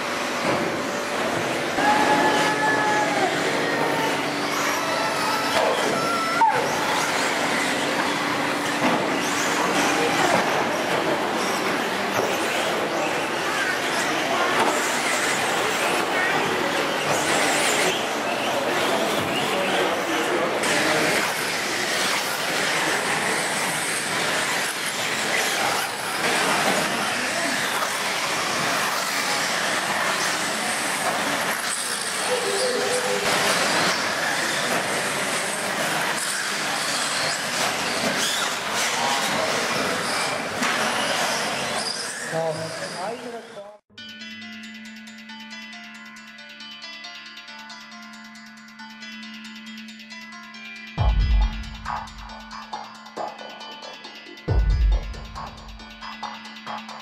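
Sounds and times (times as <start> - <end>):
model car motors whining: 0.0 - 43.6
noisy hall background: 0.0 - 57.0.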